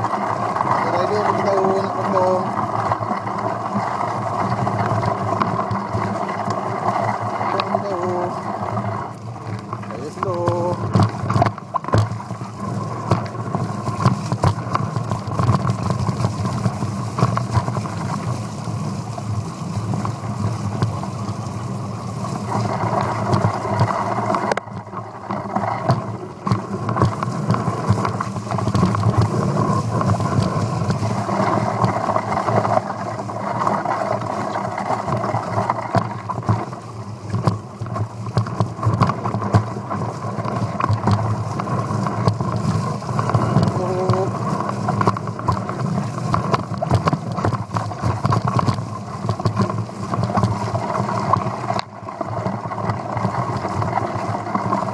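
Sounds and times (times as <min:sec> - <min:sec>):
bike rattling and knocking: 0:00.0 - 0:54.9.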